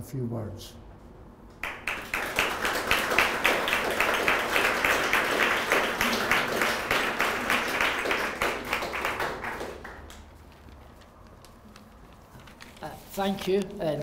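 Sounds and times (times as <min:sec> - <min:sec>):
audience applauding: 0:01.6 - 0:10.5.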